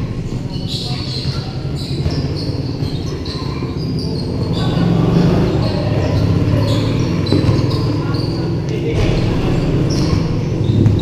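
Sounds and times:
players' voices: 0:00.0 - 0:11.0
basketball bouncing on court: 0:01.1 - 0:03.6, 0:06.7 - 0:08.3, 0:08.9 - 0:11.0.

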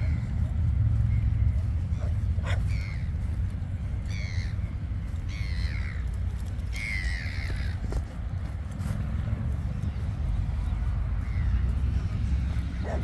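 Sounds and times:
steady low rumble: 0:00.0 - 0:13.0
bird cawing: 0:04.0 - 0:08.0.

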